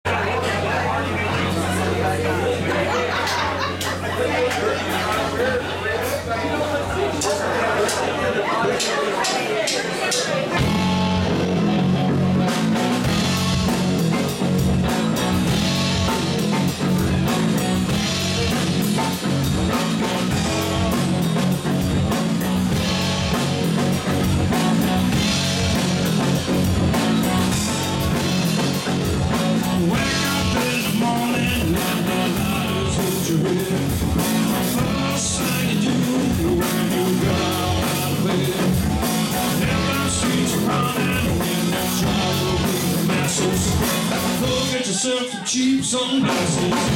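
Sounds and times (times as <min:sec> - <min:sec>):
electric bass: 0:00.0 - 0:06.3, 0:10.6 - 0:44.9, 0:45.8 - 0:46.9
drum kit: 0:08.7 - 0:45.0, 0:45.8 - 0:46.9
electric guitar: 0:10.4 - 0:46.9.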